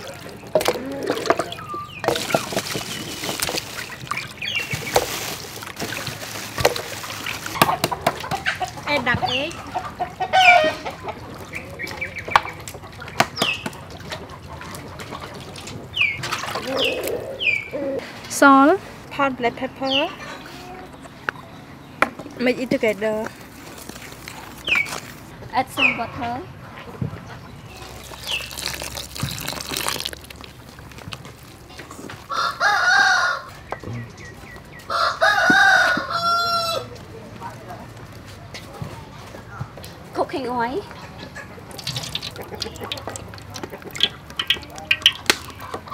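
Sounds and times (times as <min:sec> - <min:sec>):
water splashing: 0:00.0 - 0:10.0, 0:10.8 - 0:17.4, 0:22.3 - 0:25.3, 0:27.7 - 0:32.4, 0:41.5 - 0:45.9
eggs cracking against steel bowl: 0:27.8 - 0:32.3, 0:41.6 - 0:45.9
rooster crowing: 0:32.3 - 0:33.6, 0:34.9 - 0:36.9.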